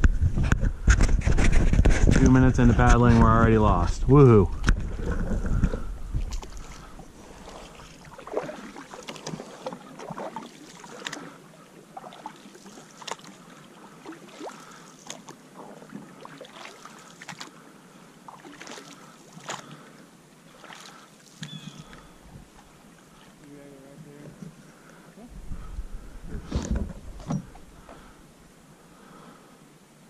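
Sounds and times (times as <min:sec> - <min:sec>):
canoe paddles in water: 0:02.9 - 0:29.7
faint steady hiss: 0:05.4 - 0:30.0.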